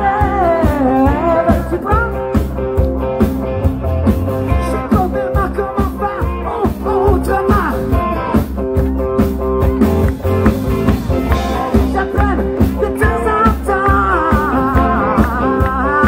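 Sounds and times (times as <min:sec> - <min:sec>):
person singing: 0:00.0 - 0:02.5, 0:04.4 - 0:08.2, 0:11.3 - 0:16.0
drums with steady beat: 0:00.0 - 0:16.0
electric guitars: 0:00.0 - 0:16.0.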